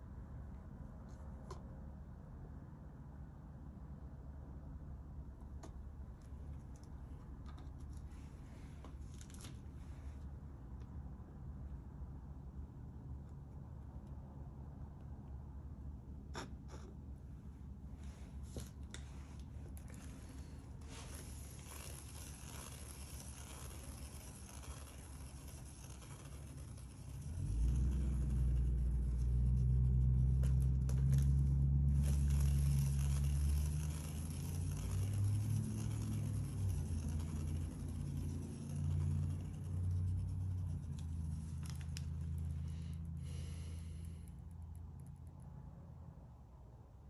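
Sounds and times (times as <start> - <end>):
turntable spinning with low rumble: 18.1 - 42.7.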